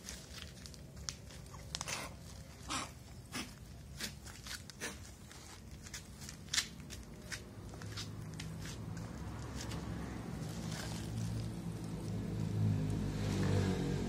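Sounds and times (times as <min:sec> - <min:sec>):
footsteps scuffing on pavement: 0:03.9 - 0:09.9.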